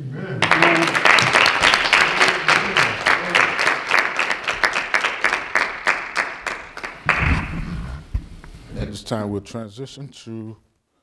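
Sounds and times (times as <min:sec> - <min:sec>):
congregation applauding: 0:00.4 - 0:08.0.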